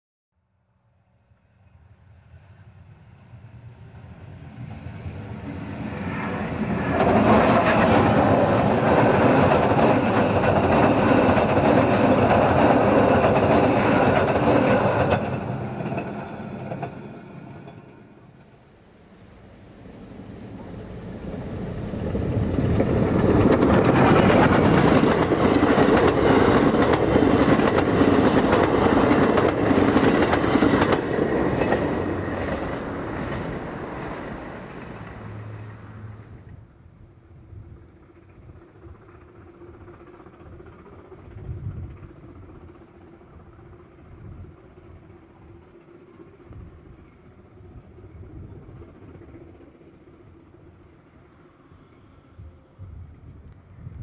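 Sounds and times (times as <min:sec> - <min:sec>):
passenger train passing: 0:00.8 - 0:54.0
wheels clicking over rail joints: 0:04.6 - 0:18.6, 0:20.6 - 0:35.8.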